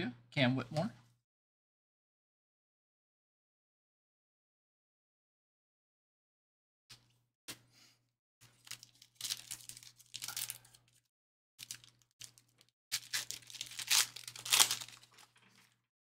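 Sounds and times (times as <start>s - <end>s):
wrappers tearing and crinkling: 8.5s - 11.0s, 11.6s - 15.8s.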